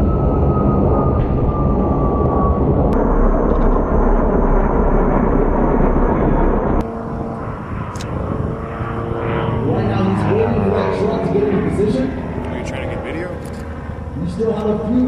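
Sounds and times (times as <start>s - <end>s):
distant engine hum: 0.0s - 15.0s
helicopter rumble: 0.0s - 15.0s
jet aircraft whine passing: 0.0s - 15.0s.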